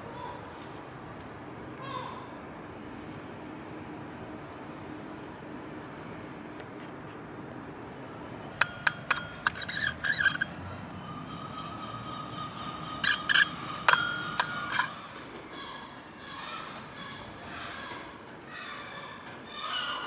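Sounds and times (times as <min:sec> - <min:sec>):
bell dome clinking: 0:08.5 - 0:10.5, 0:13.0 - 0:15.4.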